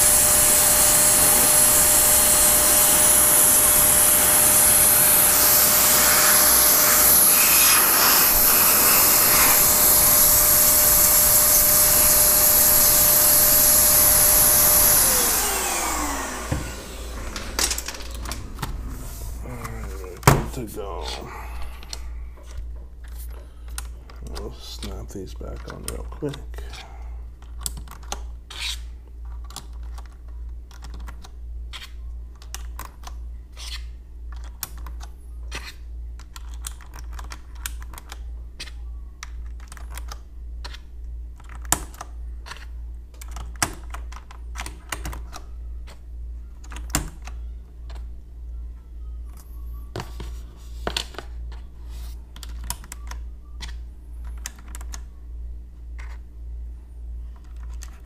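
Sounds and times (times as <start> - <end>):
steady low hum: 0.0 - 29.3
keycaps clicking onto keyboard: 29.4 - 31.3.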